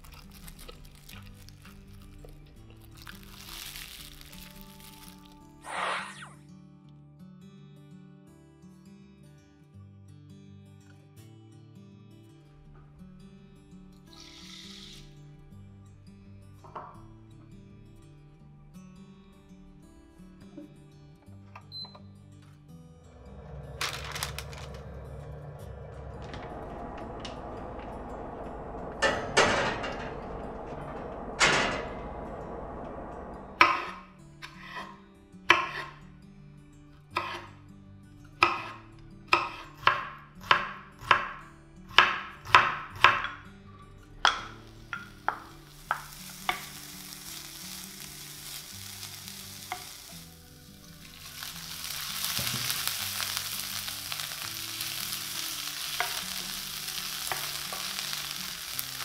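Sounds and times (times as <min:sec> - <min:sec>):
greens sizzling in a pan: 0:00.0 - 0:05.4, 0:44.5 - 0:59.0
fried dough crackling and crunching: 0:00.0 - 0:05.5, 0:23.7 - 0:25.0, 0:51.0 - 0:59.0
soft background music: 0:00.0 - 0:59.0
knife chopping on cutting board: 0:35.5 - 0:36.0, 0:37.2 - 0:37.5, 0:38.4 - 0:41.3.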